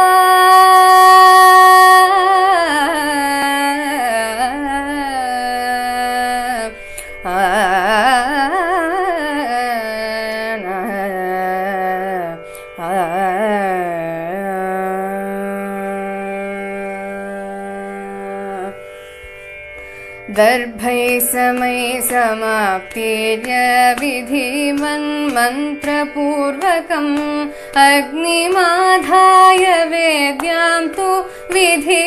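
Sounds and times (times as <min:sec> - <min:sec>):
woman singing wordlessly: 0:00.0 - 0:18.7, 0:20.3 - 0:32.0.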